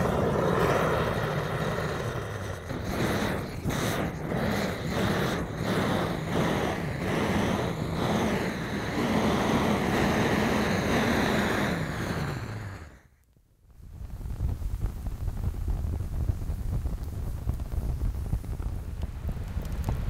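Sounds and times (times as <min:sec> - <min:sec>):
gas torch hissing: 0:00.0 - 0:13.2.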